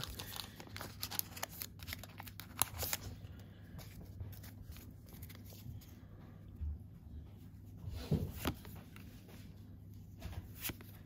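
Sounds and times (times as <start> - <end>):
foil wrapper crinkling and tearing: 0.0 - 3.2
cards rustling and sliding: 0.0 - 6.0, 8.1 - 11.0.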